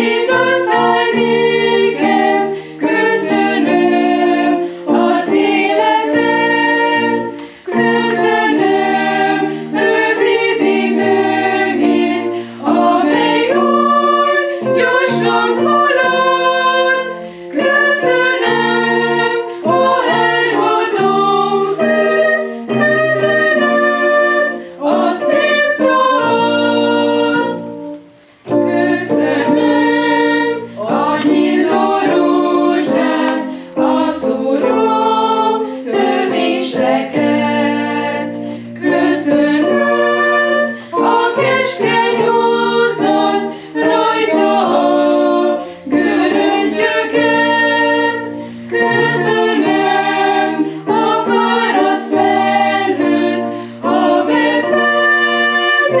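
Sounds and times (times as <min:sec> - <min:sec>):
keyboard sustained chords: 0:00.0 - 0:56.0
women singing a hymn: 0:00.0 - 0:56.0.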